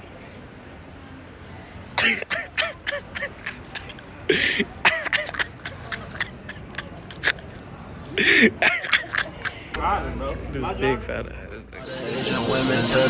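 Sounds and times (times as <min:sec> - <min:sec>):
person coughing: 0:02.0 - 0:07.5, 0:08.2 - 0:09.8.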